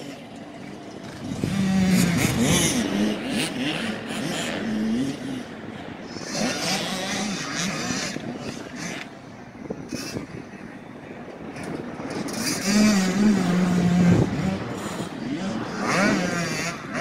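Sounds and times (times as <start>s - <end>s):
dirt bike engine revving: 1.0s - 9.1s, 11.6s - 17.0s.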